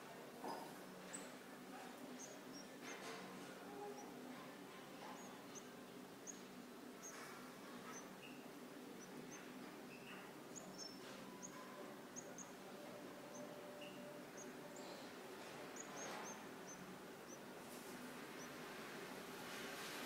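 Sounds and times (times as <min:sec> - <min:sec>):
steady low hum: 0:00.0 - 0:20.0
nestlings peeping: 0:00.4 - 0:20.0.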